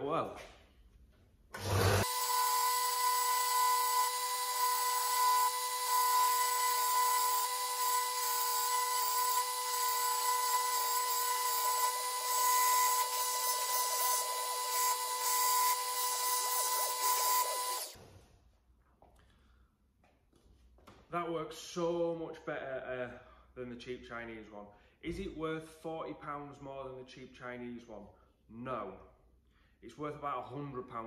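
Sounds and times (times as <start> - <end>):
belt sander motor whine: 1.6 - 18.0.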